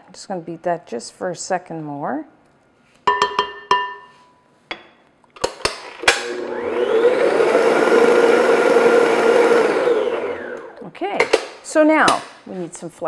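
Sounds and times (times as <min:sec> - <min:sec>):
stand mixer motor running: 0:06.2 - 0:10.8.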